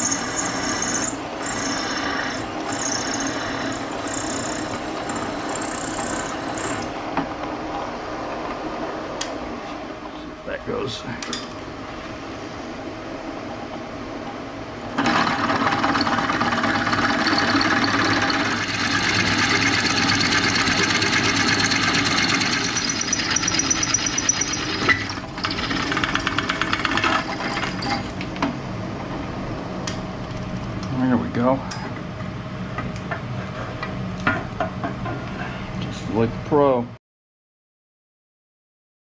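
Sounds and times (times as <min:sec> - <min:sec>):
drill bit cutting cast iron: 0:00.0 - 0:06.9, 0:17.0 - 0:26.4
drill press motor humming: 0:00.0 - 0:06.9, 0:15.0 - 0:28.1.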